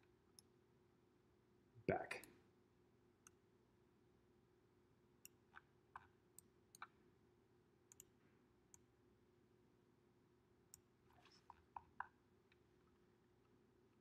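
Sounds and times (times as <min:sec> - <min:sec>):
faint room hum: 0:00.0 - 0:14.0
computer mouse clicks: 0:05.2 - 0:07.0, 0:07.9 - 0:08.9.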